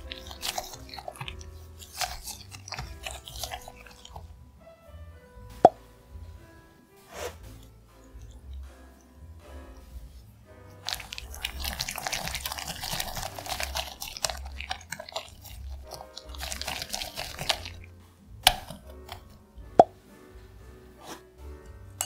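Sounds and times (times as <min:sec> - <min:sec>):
whisk scraping glass bowl: 0:00.0 - 0:04.3, 0:10.7 - 0:17.9
soft background music: 0:00.0 - 0:22.0.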